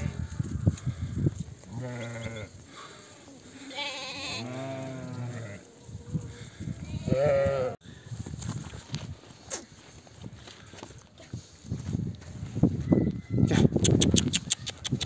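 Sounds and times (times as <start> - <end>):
sheep bleating: 1.7 - 5.6, 6.8 - 7.8.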